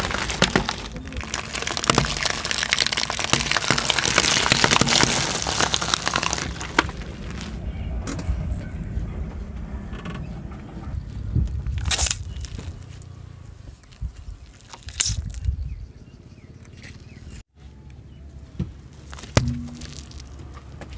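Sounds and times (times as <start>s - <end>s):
tyre crushing brittle objects: 0.0s - 7.6s, 11.7s - 13.0s, 13.8s - 15.5s, 18.9s - 20.9s.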